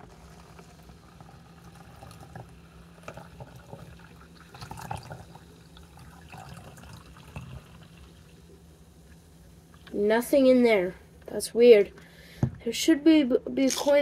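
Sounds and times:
sparkling water pouring into cup: 0.3 - 9.9.

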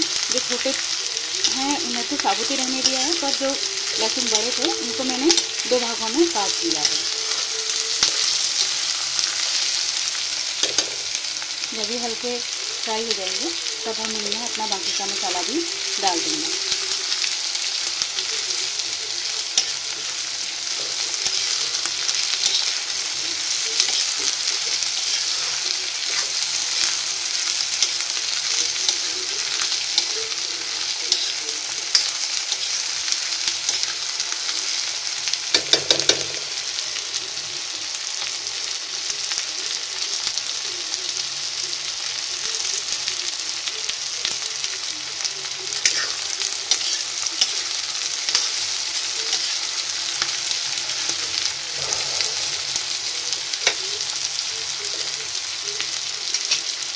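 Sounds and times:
food sizzling in oil: 0.0 - 56.9
spatula scraping pan: 20.7 - 27.1.

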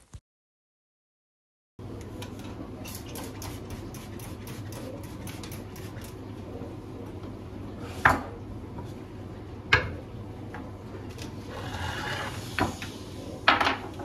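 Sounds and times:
items sliding on counter: 11.4 - 13.0.

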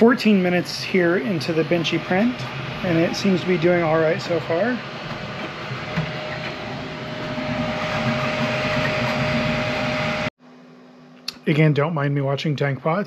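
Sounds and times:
printer motors and fans whirring: 0.0 - 10.3.

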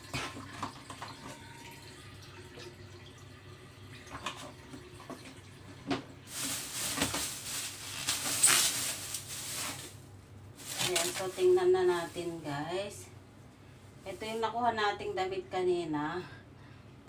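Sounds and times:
plastic bag rustling: 6.2 - 12.8, 14.0 - 14.8.

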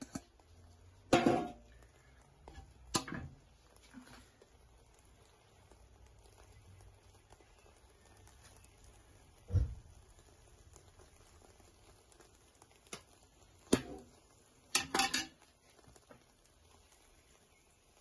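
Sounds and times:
skimmer clicking against pot: 1.2 - 3.4.

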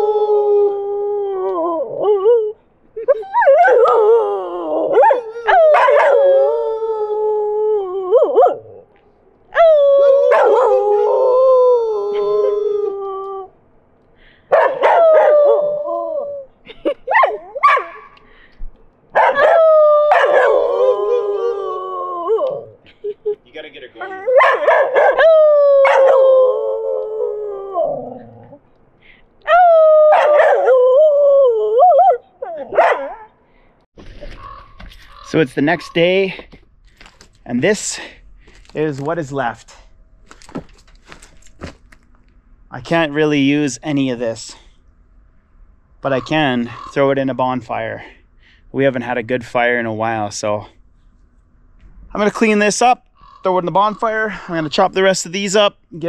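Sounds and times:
dog howling and yelping: 0.0 - 8.8, 9.5 - 13.5, 14.5 - 18.0, 19.2 - 22.8, 24.0 - 28.6, 29.4 - 33.3.

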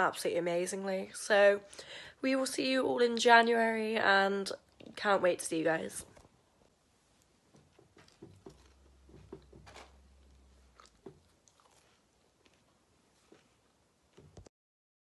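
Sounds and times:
chewing crunchy snack: 8.0 - 13.8.

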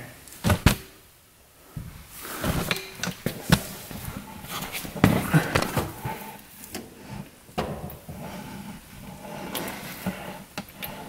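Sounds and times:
rustling: 0.2 - 11.0
knocks and clunks: 0.4 - 0.9, 7.5 - 8.2.

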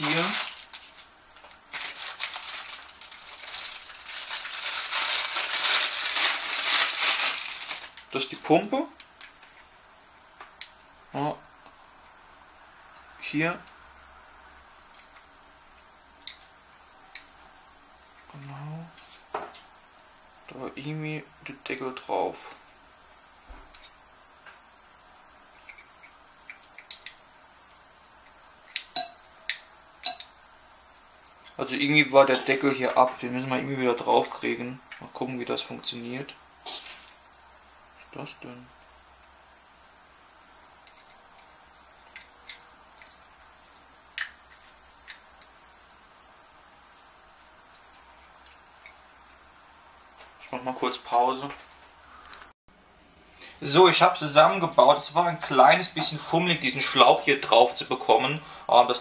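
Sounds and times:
plastic bag crinkling: 0.0 - 8.5, 36.7 - 37.2.

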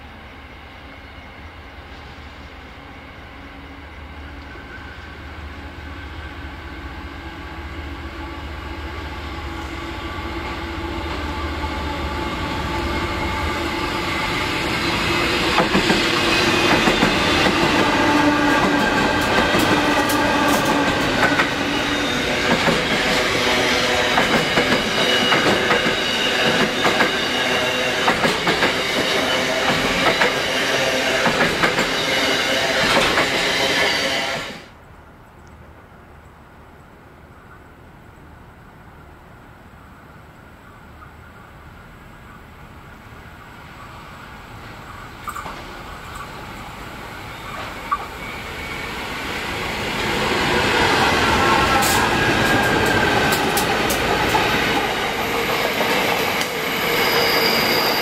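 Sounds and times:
diesel locomotive engine: 0.0 - 34.8, 36.6 - 58.0
train wheels clickety-clack: 14.1 - 34.6, 44.6 - 46.4, 49.8 - 58.0.

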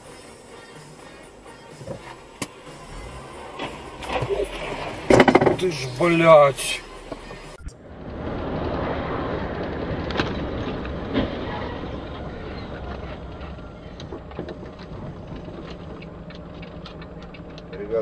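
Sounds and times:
tyre noise on wet road: 1.9 - 18.0
sharp knocks: 5.1 - 5.8.

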